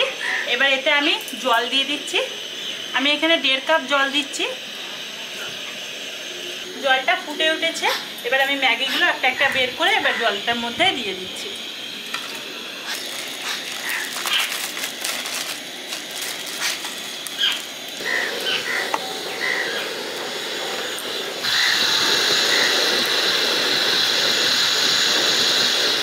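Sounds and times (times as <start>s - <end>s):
gas burner hiss: 0.0s - 26.0s
water boiling in a pan: 0.0s - 26.0s
plastic wrappers crinkling: 12.2s - 18.8s.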